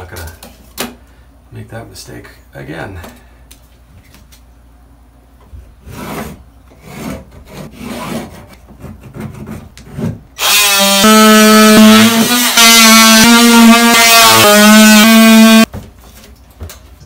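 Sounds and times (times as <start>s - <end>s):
multi-tool buzzing whine: 10.4s - 15.7s.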